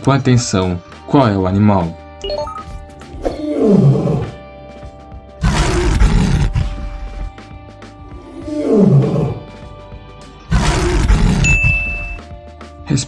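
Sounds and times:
background music: 0.0s - 13.0s
lion roaring: 3.2s - 4.5s, 5.4s - 7.3s, 8.1s - 9.6s, 10.5s - 12.2s.

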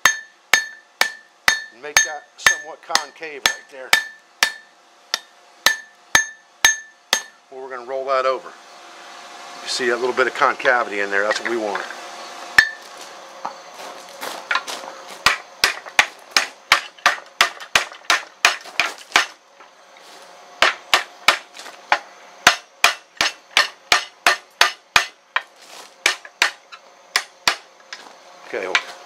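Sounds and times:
hammer striking steel on anvil: 0.0s - 7.4s, 12.6s - 12.8s, 22.4s - 25.2s.

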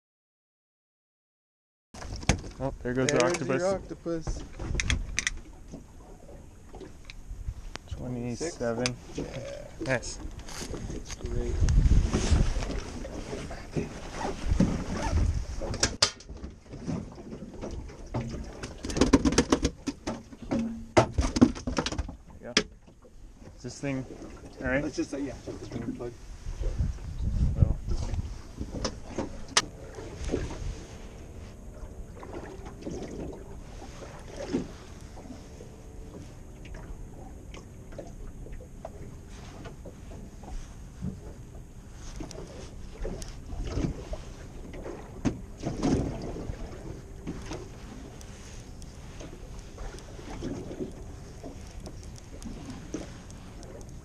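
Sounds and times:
wind and water rumble: 2.0s - 54.0s
faint steady hum: 19.9s - 54.0s.

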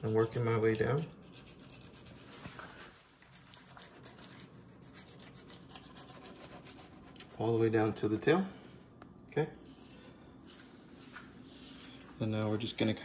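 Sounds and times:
knife scraping fish bones: 0.0s - 2.3s, 3.3s - 7.3s.

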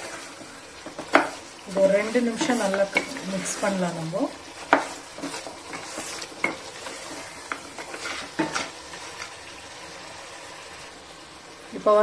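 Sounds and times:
spatula scraping a frying pan: 0.0s - 9.4s
frying sizzle: 0.0s - 12.0s.

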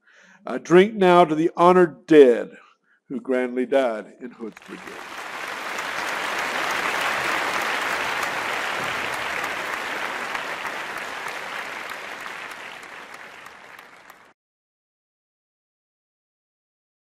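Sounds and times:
audience applauding: 4.5s - 14.4s.

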